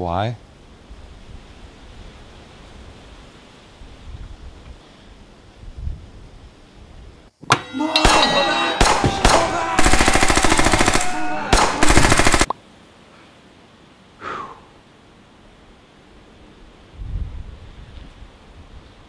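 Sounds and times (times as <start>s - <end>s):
faint hiss: 0.0s - 7.5s, 12.4s - 19.0s
rapid machine-gun fire: 8.8s - 12.5s.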